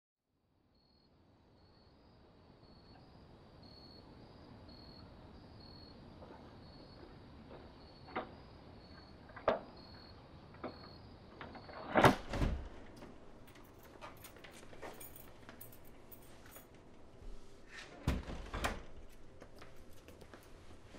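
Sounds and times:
crickets chirping: 0.7s - 17.2s
door clunk with rattle: 10.6s - 15.2s, 18.0s - 19.2s.

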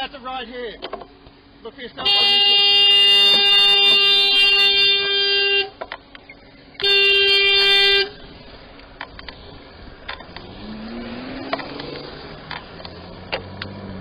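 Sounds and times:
car horn blasts: 2.0s - 5.8s, 6.8s - 8.2s.

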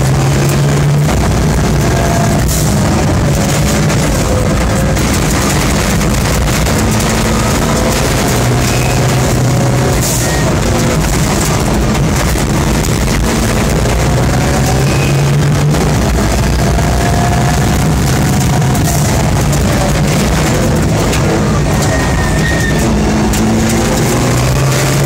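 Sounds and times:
rally car engine running hard: 0.0s - 25.0s
tyre and gravel noise: 0.0s - 25.0s
stones clicking against car body: 2.7s - 15.0s.

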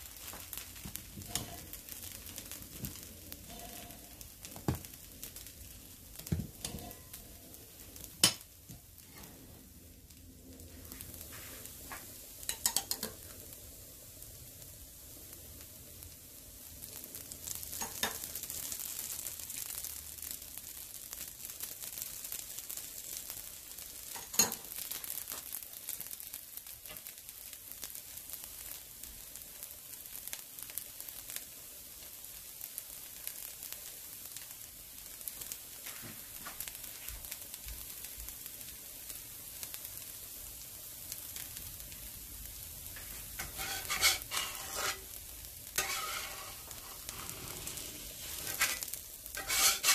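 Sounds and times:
dosa sizzling in oil: 0.0s - 49.9s
metal spatula scraping pan: 1.3s - 1.7s, 6.6s - 7.2s, 43.4s - 45.2s, 45.8s - 49.9s.

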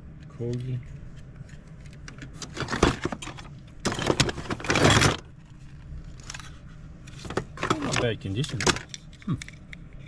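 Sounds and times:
toy vehicles clattering together: 1.8s - 5.3s, 7.2s - 9.7s.

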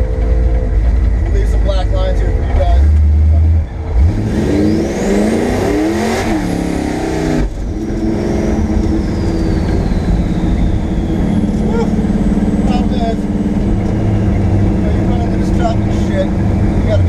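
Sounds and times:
car engine pulling hard: 0.0s - 17.0s
high engine whine: 0.0s - 17.0s
turbo whistle: 8.4s - 12.3s.

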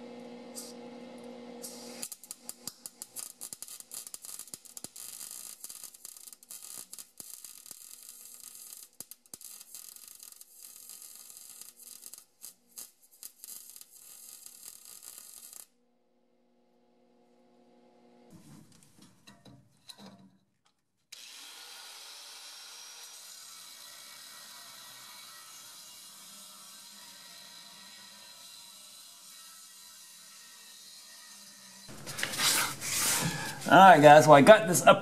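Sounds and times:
welding arc crackling: 0.1s - 15.7s, 31.9s - 34.8s.

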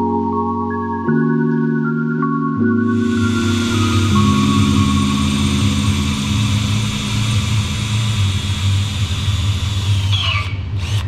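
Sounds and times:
electric drill boring steel: 2.9s - 11.0s.

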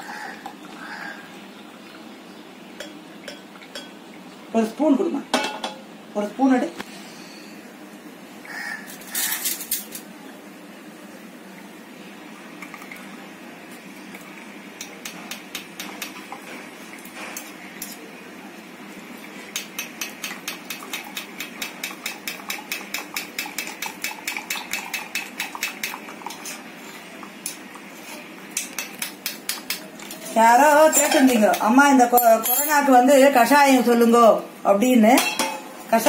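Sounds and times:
metal spoon clinking in strainer: 30.9s - 32.9s.

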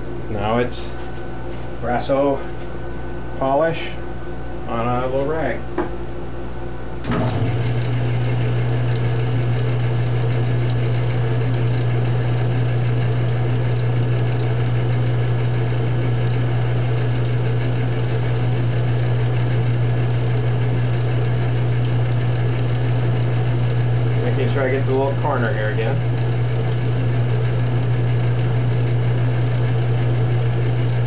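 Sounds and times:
metal lathe humming: 7.0s - 31.0s.

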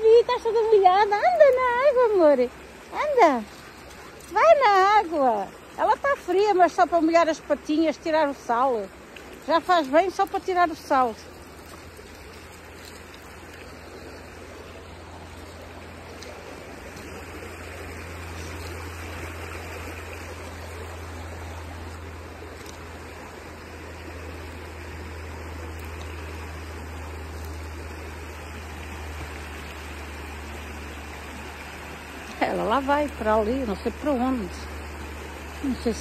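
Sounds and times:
stream flowing over stones: 0.0s - 36.0s.

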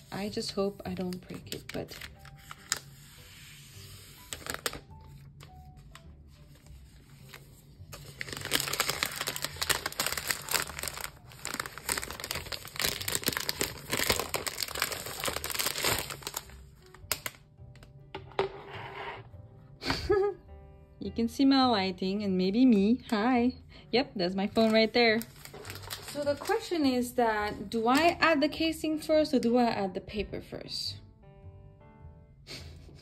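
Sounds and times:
plastic film peeling and crinkling: 0.0s - 17.4s, 24.5s - 28.1s
quiet background music: 0.0s - 33.0s.

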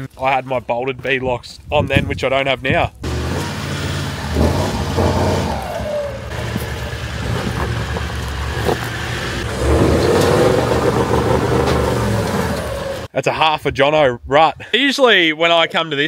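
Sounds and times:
vehicle engines revving under load: 3.0s - 13.1s.

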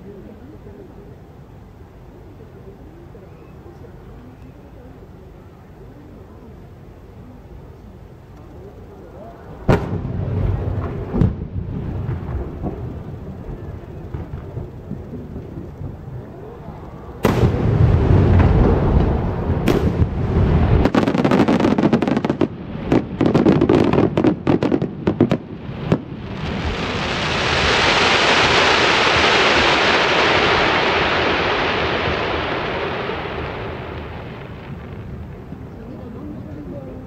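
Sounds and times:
firework crackling: 9.4s - 37.0s
firework booms: 9.6s - 16.3s, 17.2s - 35.8s.

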